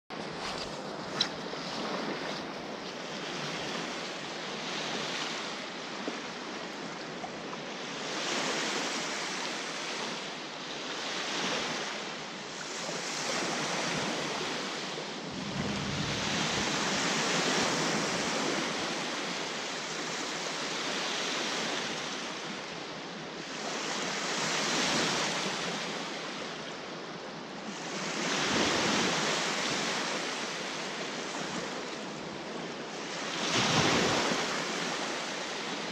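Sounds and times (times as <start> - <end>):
small waves breaking on sand: 0.2 - 35.9
wind gusts on microphone: 13.0 - 21.0.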